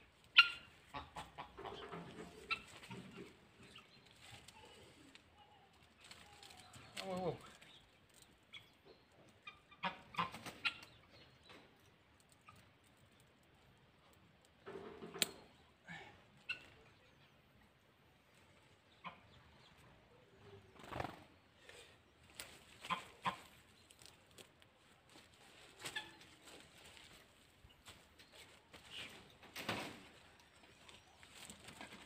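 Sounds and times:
hens clucking: 0:00.3 - 0:04.0, 0:08.5 - 0:11.7, 0:22.6 - 0:23.8.

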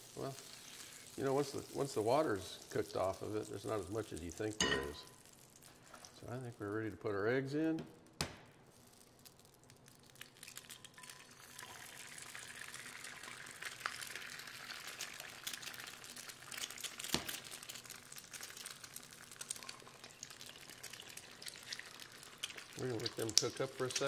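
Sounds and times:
eggs sizzling in oil: 0:00.0 - 0:07.5, 0:08.6 - 0:24.0
small oil pops: 0:16.8 - 0:17.8, 0:22.4 - 0:24.0.

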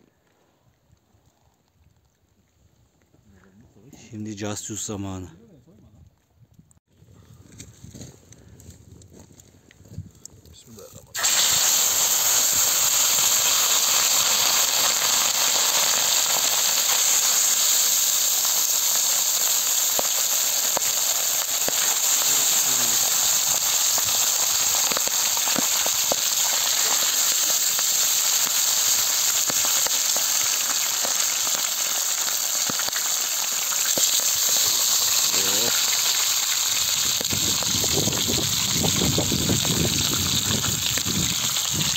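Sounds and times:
sharp crackling pops: 0:11.1 - 0:41.9
fish sizzling on a griddle: 0:11.2 - 0:41.9.

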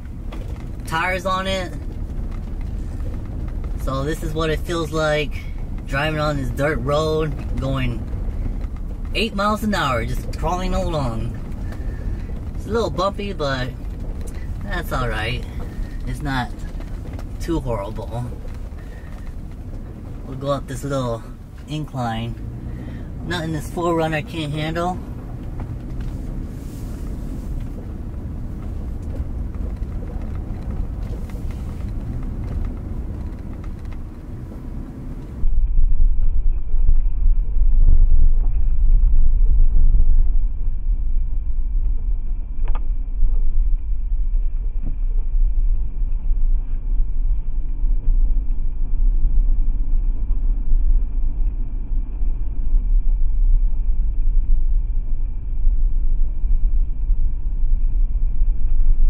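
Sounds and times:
low rumble of tyres and engine: 0:00.0 - 0:59.0.

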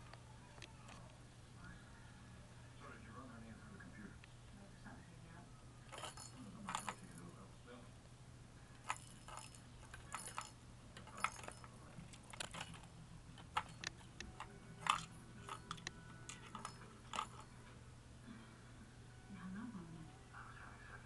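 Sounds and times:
toy bell jingling: 0:05.9 - 0:07.2, 0:08.8 - 0:11.8, 0:14.8 - 0:17.5.

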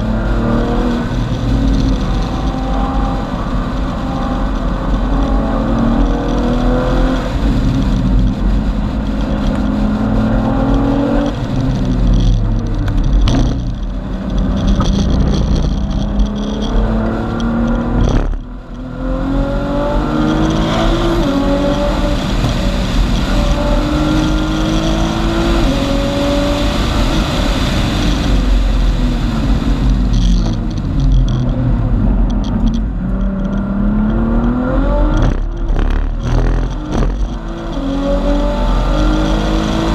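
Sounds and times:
car engine revving through gears: 0:00.0 - 0:39.9
road and wind rumble: 0:00.0 - 0:39.9.

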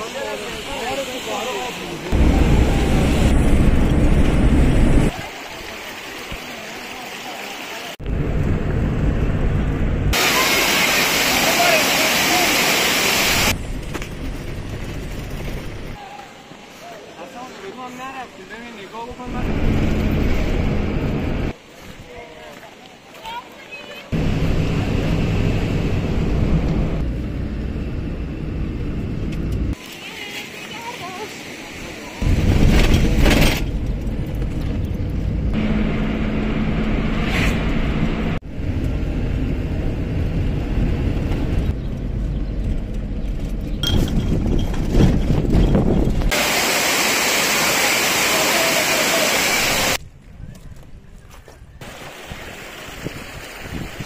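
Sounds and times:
hiss: 0:10.2 - 0:13.6, 0:46.3 - 0:50.0
wind rumbling on microphone: 0:37.6 - 0:46.4, 0:50.0 - 0:54.0.

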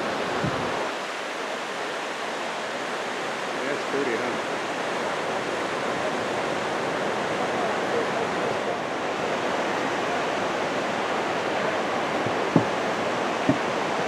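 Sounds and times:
river rushing over rocky rapids: 0:00.0 - 0:14.0.

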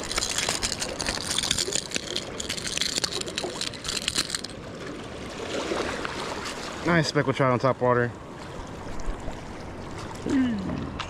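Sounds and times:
seawater washing among rocks: 0:00.0 - 0:07.3.

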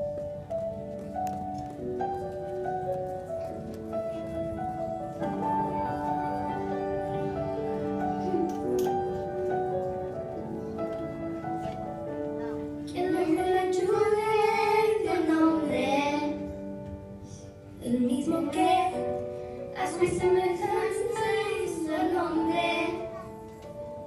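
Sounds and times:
electronic keyboard accompaniment: 0:00.0 - 0:24.0
girls singing into a microphone: 0:12.9 - 0:16.6, 0:17.8 - 0:19.2, 0:19.8 - 0:23.3.

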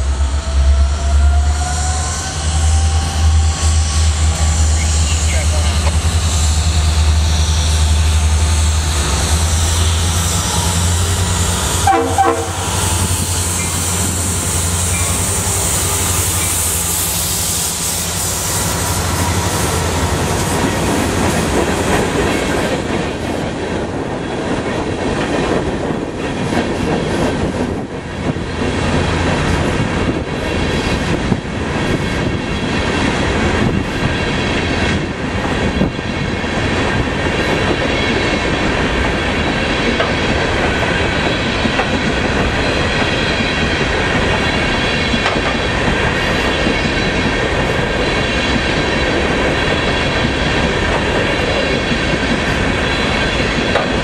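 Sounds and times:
diesel locomotives passing: 0:00.0 - 0:54.0
train horn: 0:10.4 - 0:17.2
wheels clacking over rail joints: 0:39.8 - 0:54.0.

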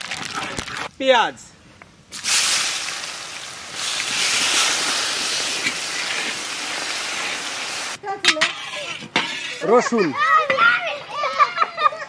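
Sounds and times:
onions sizzling in hot oil: 0:02.1 - 0:08.0.

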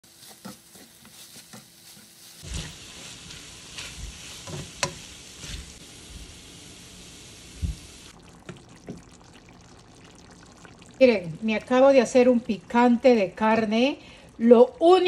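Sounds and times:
spoon scraping pan: 0:00.0 - 0:05.8
meat and onion sizzling in pan: 0:00.0 - 0:10.8.

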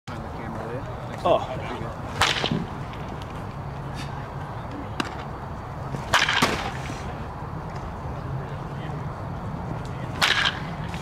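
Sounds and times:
baseball bat striking ball: 0:02.2 - 0:02.8, 0:06.0 - 0:06.8, 0:10.1 - 0:11.0.

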